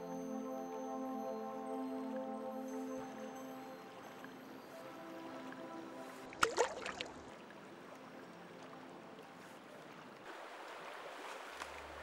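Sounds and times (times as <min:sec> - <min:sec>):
river water flowing over stones: 0:03.8 - 0:12.0.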